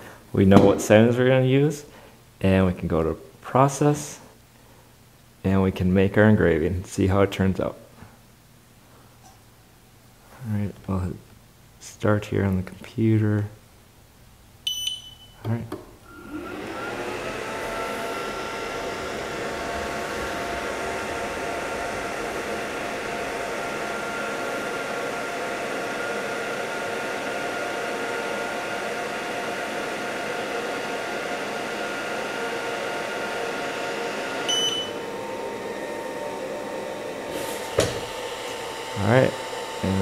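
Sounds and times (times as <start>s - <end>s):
fan whirring: 0.0s - 3.9s, 15.4s - 40.0s
short high beep: 14.7s - 15.4s, 34.5s - 34.9s.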